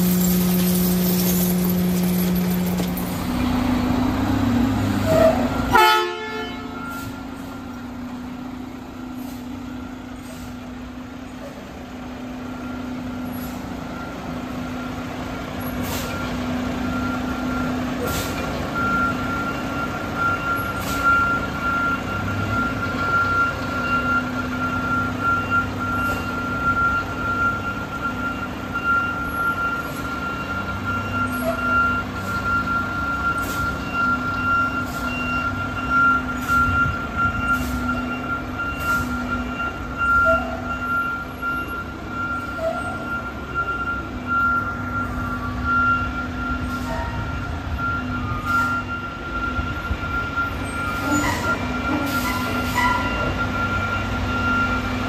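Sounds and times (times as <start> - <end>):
diesel truck engine running: 0.0 - 6.0, 6.6 - 55.0
reversing alarm tone: 18.8 - 55.0.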